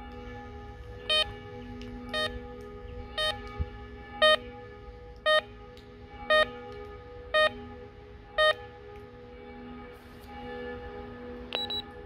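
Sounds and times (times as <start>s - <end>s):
pager beeping: 8.4s - 8.6s, 11.5s - 11.9s.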